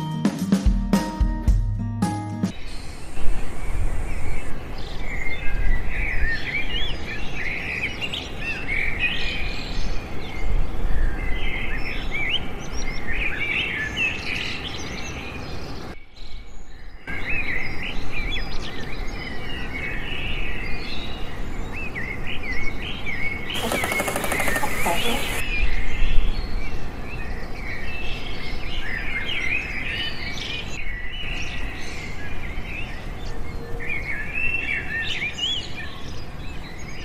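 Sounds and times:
small birds chirping: 0:11.5 - 0:25.7.

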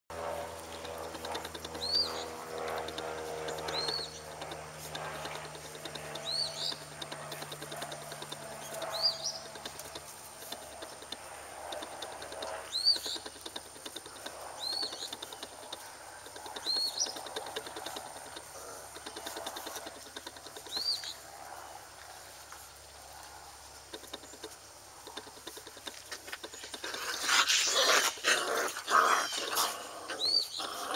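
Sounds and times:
bird chirping: 0:00.8 - 0:21.3, 0:29.1 - 0:30.9.

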